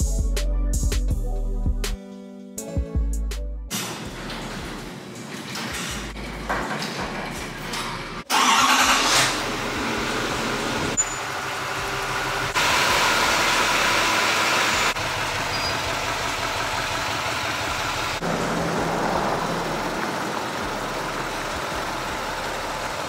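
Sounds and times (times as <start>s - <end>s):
diesel truck engine idling: 8.3s - 23.0s.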